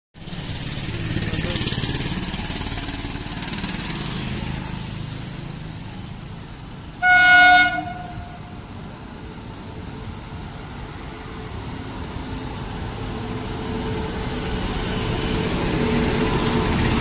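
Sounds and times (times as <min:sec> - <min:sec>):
road traffic rumble: 0:00.2 - 0:17.0
train horn blast: 0:07.0 - 0:08.6.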